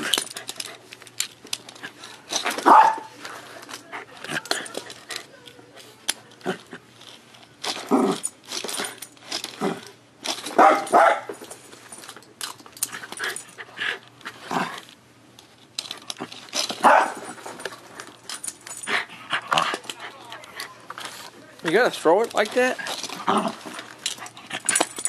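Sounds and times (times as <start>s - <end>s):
small dog barking: 2.6s - 3.1s, 10.6s - 11.3s, 16.8s - 17.2s.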